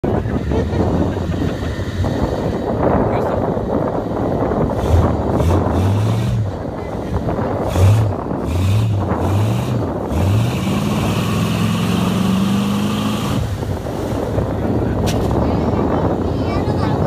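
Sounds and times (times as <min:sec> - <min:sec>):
engine revving: 0:04.7 - 0:06.6, 0:07.5 - 0:14.4.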